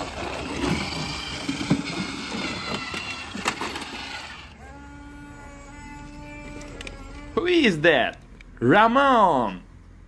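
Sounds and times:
toy motor and gears whining: 0.0s - 7.9s.

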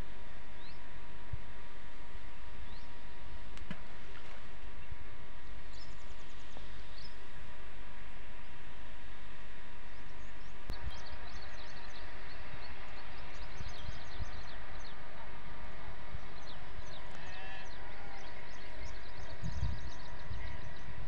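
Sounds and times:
wind rumble on microphone: 0.0s - 21.0s
small birds chirping: 2.6s - 7.4s, 9.9s - 15.4s, 16.0s - 21.0s
distant animal call: 16.9s - 18.4s.

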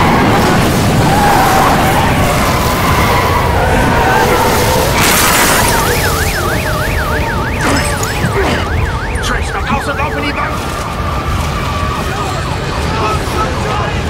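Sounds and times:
siren wailing: 0.0s - 13.6s
roar of wind and debris: 0.0s - 14.0s
crash: 4.4s - 8.8s.

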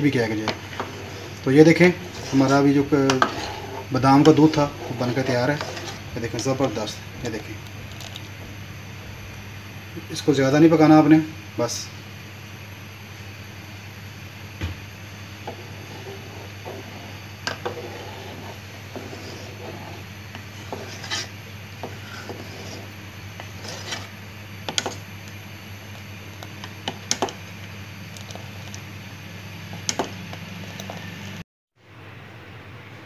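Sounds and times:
steady low hum: 0.0s - 33.0s
spoon scraping a steel pot: 0.7s - 6.9s, 15.5s - 24.1s.

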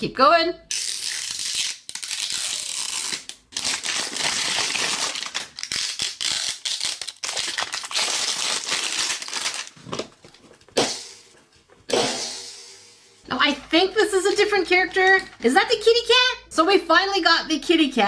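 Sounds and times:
plastic shrink wrap crinkling: 0.7s - 10.7s.

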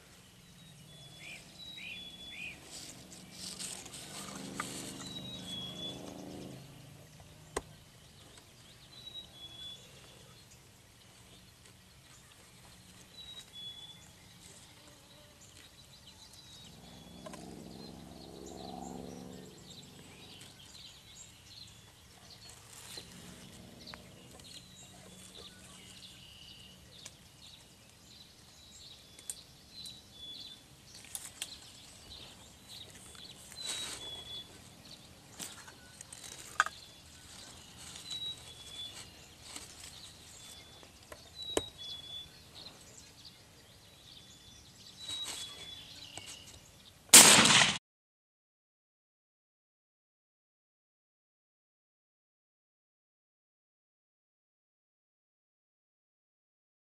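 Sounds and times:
grass rustling against camera: 0.8s - 6.8s, 22.2s - 28.2s, 30.9s - 43.4s, 44.5s - 47.7s
low hum: 16.2s - 21.3s.

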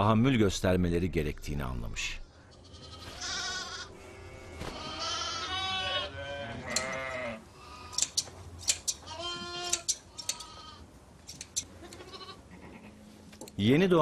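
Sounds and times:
sheep bleating: 2.3s - 8.0s, 9.0s - 10.8s, 11.8s - 13.0s
hand shears snipping: 6.7s - 7.0s, 7.9s - 10.5s, 11.2s - 12.0s.

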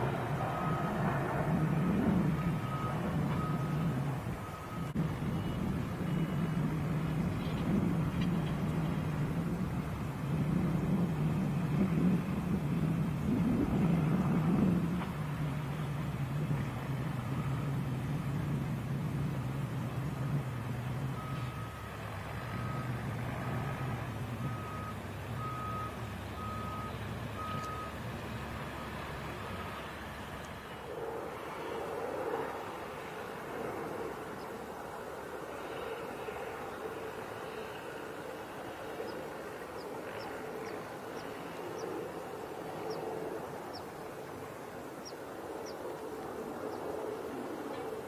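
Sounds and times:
distant traffic rumble: 0.0s - 48.0s
reversing alarm beeping: 2.3s - 6.8s, 21.1s - 23.0s, 24.4s - 28.0s.

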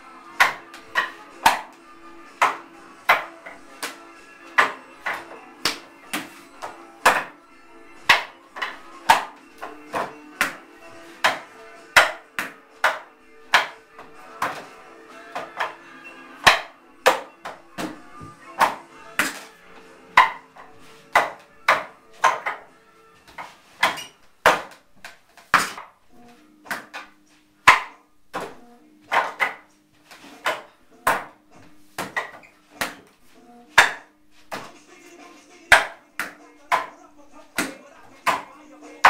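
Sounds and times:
sharp wooden knocks: 2.4s - 7.4s, 11.2s - 14.7s, 21.1s - 22.7s, 23.3s - 25.9s, 26.7s - 29.6s, 30.4s - 31.4s.

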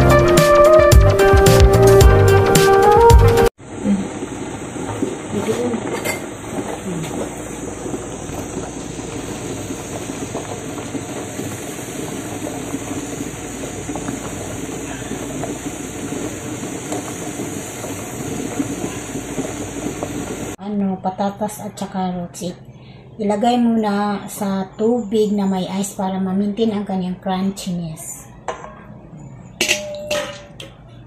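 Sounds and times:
gas stove hiss: 3.6s - 20.6s
water boiling in a pot: 3.6s - 20.6s.

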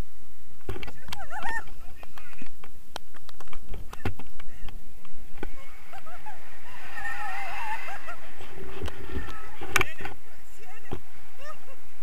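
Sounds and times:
wind on microphone: 0.0s - 12.0s
high wavering squeal of voice: 5.5s - 9.6s.

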